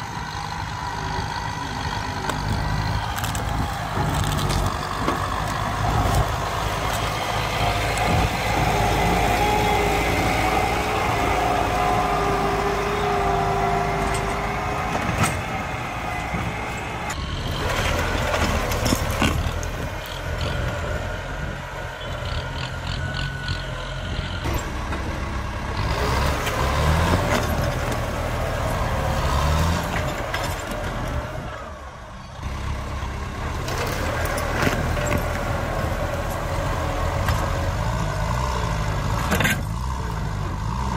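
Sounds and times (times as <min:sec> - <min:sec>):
tractor diesel engine revving: 0:00.0 - 0:40.9
plough cracking through roots: 0:02.2 - 0:08.9, 0:17.1 - 0:20.8.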